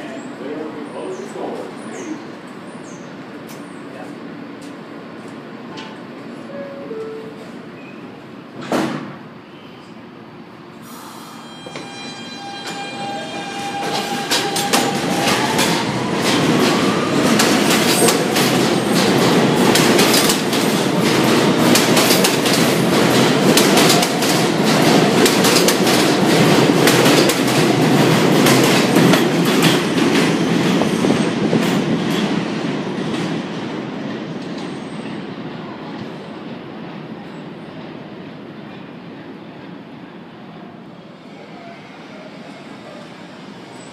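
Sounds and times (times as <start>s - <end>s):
train electric whine: 10.9s - 20.3s
train wheels clickety-clack: 13.8s - 35.3s.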